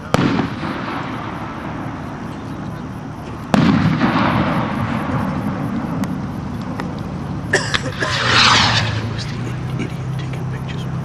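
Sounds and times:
skyrocket burst boom: 0:00.0 - 0:02.1, 0:03.4 - 0:06.1, 0:07.8 - 0:09.8
skyrocket lit with sharp crack: 0:03.5 - 0:07.1, 0:07.7 - 0:09.7
rocket whoosh lifting off: 0:07.8 - 0:10.0.

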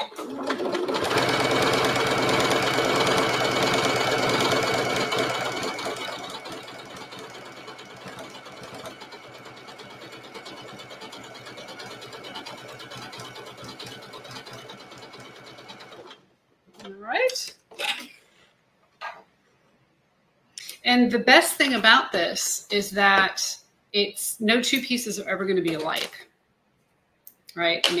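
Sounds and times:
sewing machine stitching: 0:00.0 - 0:16.2.

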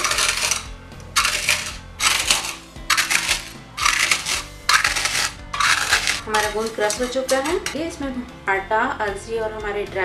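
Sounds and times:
puffs crunching under steel bowl: 0:00.0 - 0:07.8
soft background music: 0:00.0 - 0:10.0.

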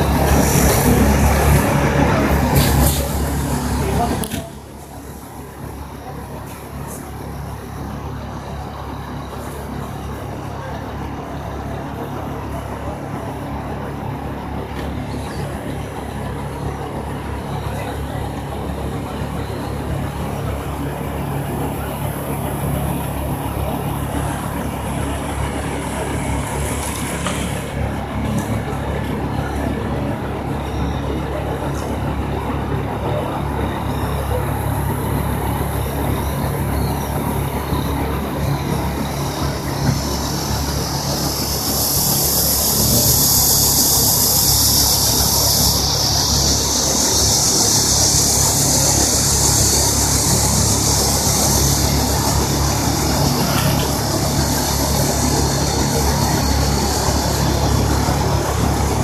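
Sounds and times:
car engine and road noise: 0:00.0 - 0:59.0
high hiss: 0:33.4 - 0:59.0.

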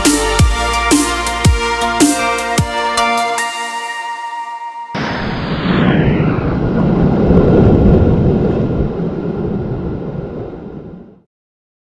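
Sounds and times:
wind on microphone: 0:05.0 - 0:11.2.

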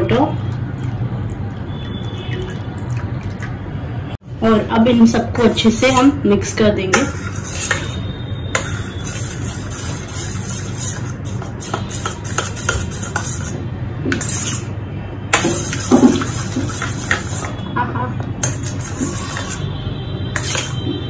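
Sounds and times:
metal spoon stirring in steel bowl: 0:05.0 - 0:14.7, 0:15.3 - 0:17.7, 0:18.4 - 0:21.0.

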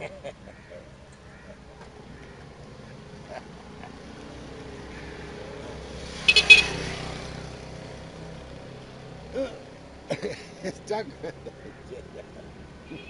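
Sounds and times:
vehicle passing: 0:00.7 - 0:12.8
high horn beeps: 0:06.3 - 0:06.8.

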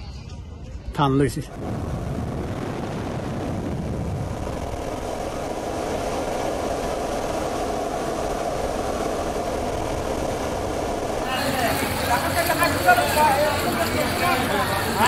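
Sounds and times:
helicopter engine and rotor drone: 0:04.2 - 0:15.0.

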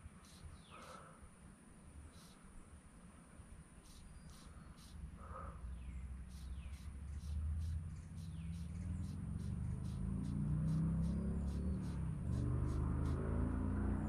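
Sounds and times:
insects chirping: 0:00.0 - 0:14.0
falling bird calls: 0:03.8 - 0:14.0.

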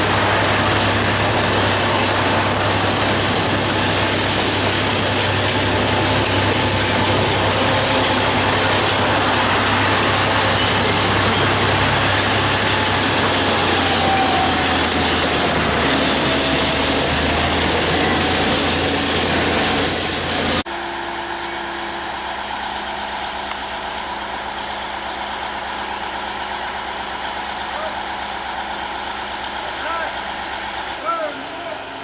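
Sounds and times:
idling engine hum: 0:00.0 - 0:18.4
freight wagons rumbling: 0:00.0 - 0:20.6, 0:22.0 - 0:32.0
locomotive engine hum: 0:00.0 - 0:32.0.

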